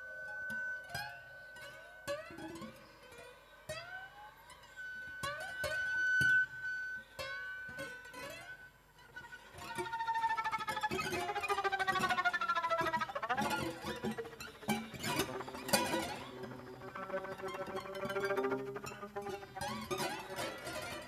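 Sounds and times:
electric violin: 0:09.0 - 0:21.0.

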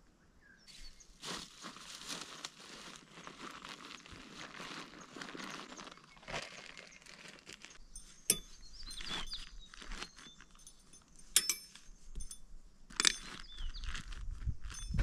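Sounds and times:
bags and cord rustling: 0:01.2 - 0:15.0
metallic clinks of strap hooks: 0:07.9 - 0:09.4, 0:10.2 - 0:13.5.

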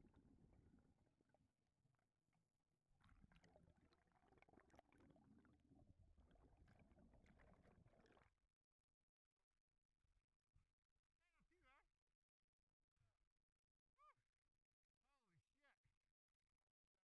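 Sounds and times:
underwater exhaust bubbles: 0:03.0 - 0:08.4.

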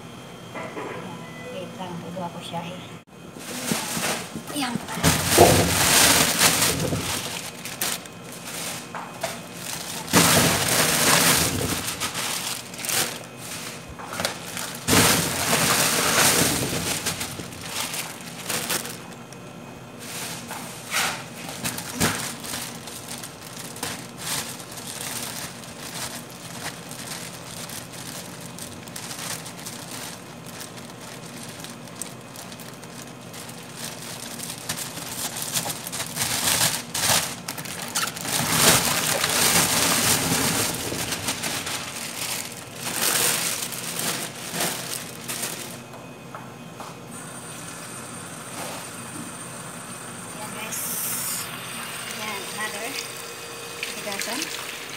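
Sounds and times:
plastic bag crinkling: 0:03.4 - 0:46.0.

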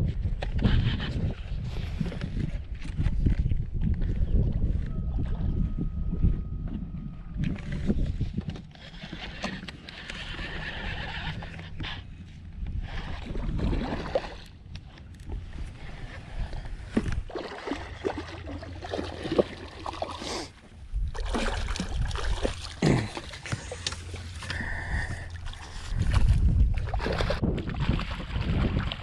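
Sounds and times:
fish splashing in water: 0:17.1 - 0:24.5.

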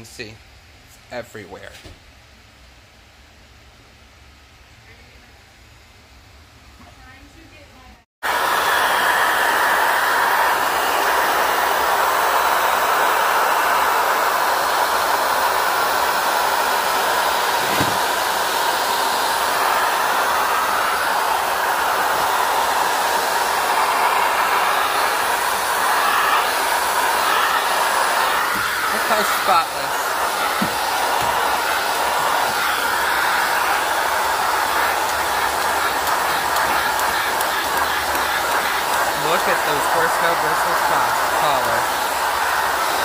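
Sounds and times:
vacuum cleaner running: 0:08.2 - 0:43.0
brief knock: 0:17.7 - 0:18.0.

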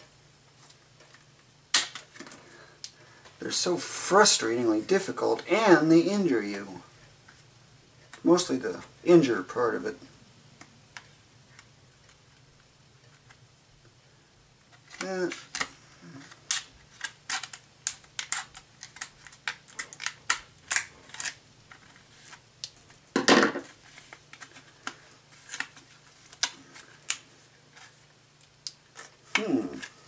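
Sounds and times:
plastic crackling: 0:14.7 - 0:30.0.

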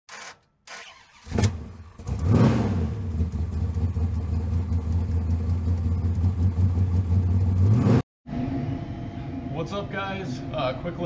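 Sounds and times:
car engine running: 0:00.9 - 0:08.0.

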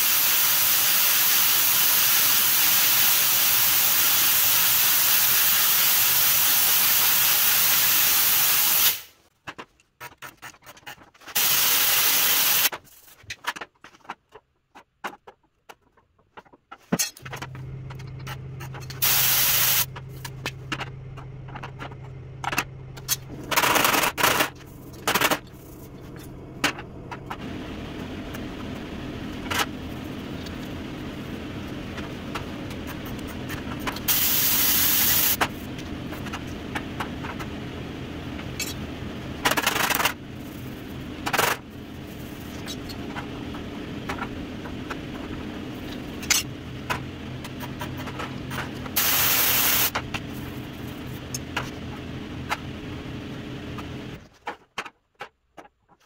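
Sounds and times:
compressed air hissing: 0:00.0 - 0:09.2, 0:11.4 - 0:12.7, 0:19.0 - 0:19.9, 0:34.1 - 0:35.4, 0:49.0 - 0:49.9
welder zaps: 0:00.0 - 0:09.2, 0:11.4 - 0:12.7, 0:19.0 - 0:19.9, 0:34.0 - 0:35.4, 0:49.0 - 0:50.0
steady machine hum: 0:17.2 - 0:54.3.

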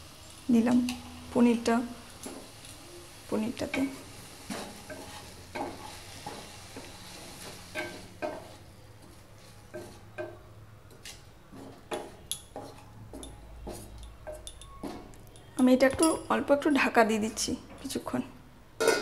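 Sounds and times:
light frying sizzle: 0:00.0 - 0:18.2
spatula scraping a pan: 0:03.6 - 0:12.9, 0:13.6 - 0:14.0.

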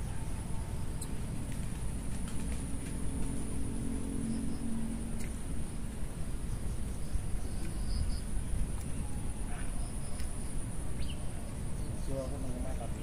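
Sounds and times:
high-pitched insect drone: 0:03.5 - 0:05.8.

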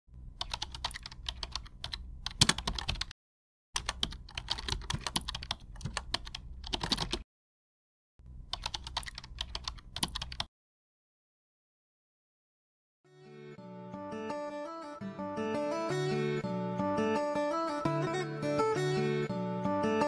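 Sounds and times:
keyboard typing clicks: 0:00.4 - 0:03.1, 0:03.8 - 0:07.2, 0:08.5 - 0:10.5.

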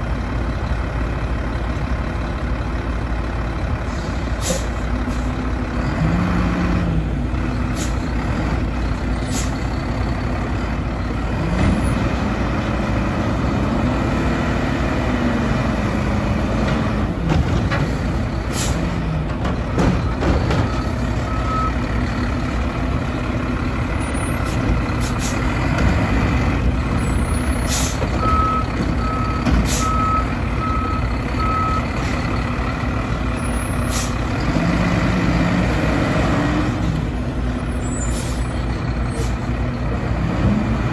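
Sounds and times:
truck engine revving: 0:04.8 - 0:40.9
reversing alarm beeps: 0:19.7 - 0:21.8, 0:28.2 - 0:31.9.

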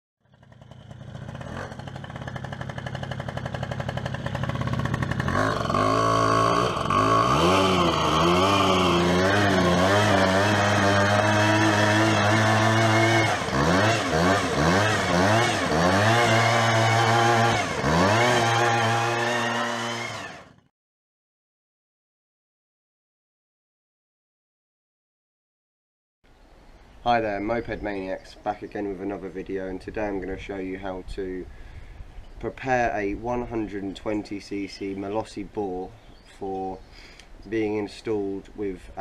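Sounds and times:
scooter engine revving: 0:00.2 - 0:20.7.

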